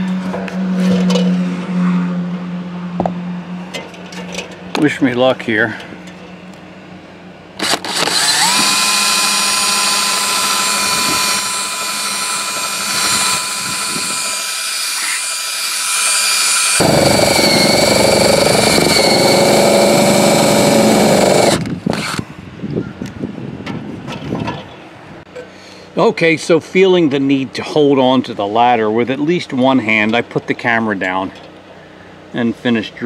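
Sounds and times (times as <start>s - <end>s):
power drill boring a hole: 7.6s - 22.2s.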